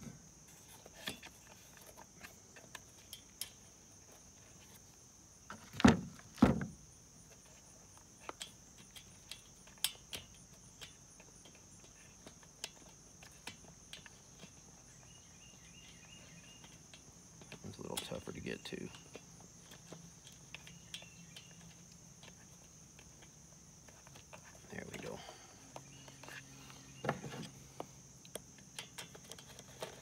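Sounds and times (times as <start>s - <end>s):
small metal clicks and taps: 2.6s - 3.6s, 7.4s - 14.6s, 15.8s - 25.0s, 28.2s - 30.0s.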